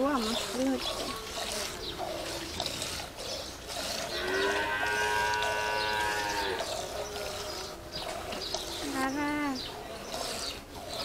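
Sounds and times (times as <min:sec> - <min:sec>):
cow mooing: 0:03.8 - 0:09.2.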